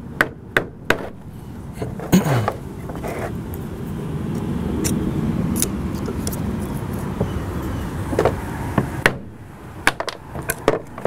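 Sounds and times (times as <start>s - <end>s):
motor vehicle rumble: 0.0s - 11.0s.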